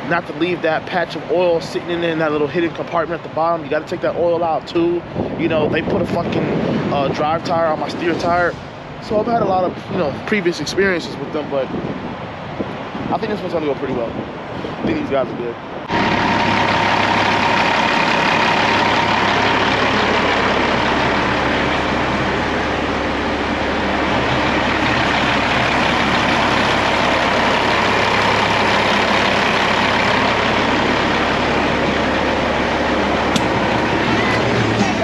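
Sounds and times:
truck diesel engine running: 0.0 - 10.2, 15.7 - 35.0.

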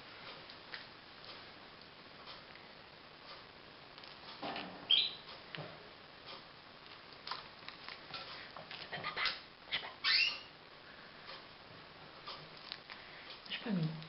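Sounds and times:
dog squeaking: 4.9 - 5.2, 9.0 - 10.5.

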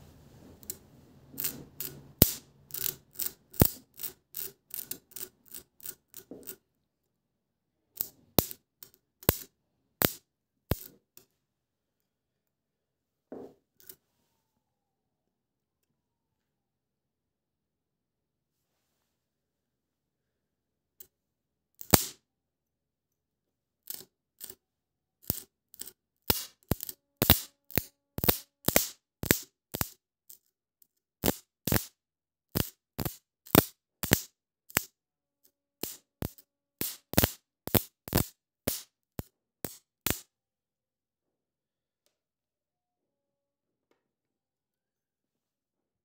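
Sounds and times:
electric spark cracks: 21.8 - 22.2, 28.2 - 30.0, 31.2 - 31.9, 35.8 - 38.8, 39.6 - 40.2.

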